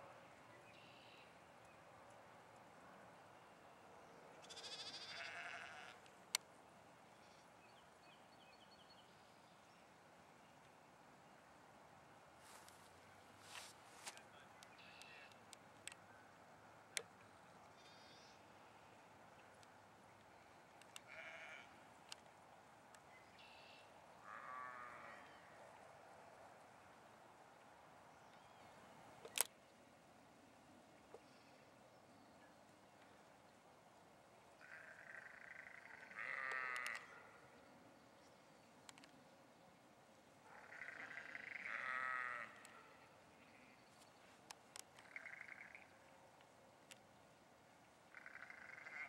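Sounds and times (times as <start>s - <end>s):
faint steady hiss: 0.0s - 49.0s
sheep bleating: 4.4s - 6.0s, 21.1s - 21.7s, 34.6s - 37.2s, 40.7s - 42.7s, 48.3s - 49.0s.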